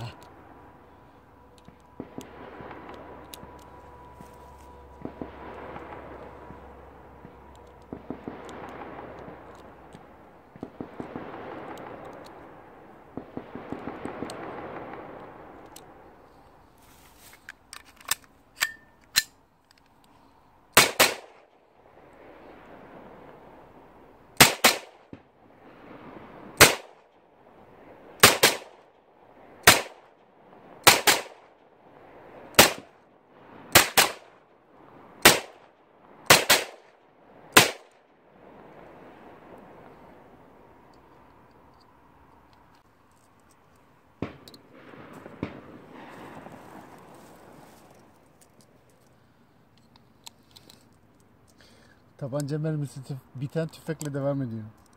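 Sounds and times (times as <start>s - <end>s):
distant gunshots rolling din: 0.1s - 16.2s, 20.8s - 40.8s, 44.2s - 48.3s
loud pistol shots with echo: 20.8s - 21.5s, 24.4s - 25.1s, 26.6s - 27.1s, 28.2s - 28.9s, 29.6s - 30.1s, 30.8s - 31.5s, 32.5s - 32.9s, 33.7s - 34.4s, 35.2s - 35.7s, 36.3s - 36.9s, 37.5s - 37.9s.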